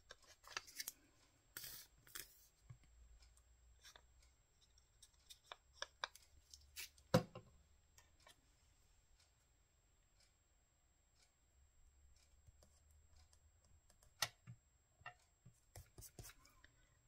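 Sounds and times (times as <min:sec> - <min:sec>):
small clicks and taps: 0:01.6 - 0:08.4, 0:12.2 - 0:16.8.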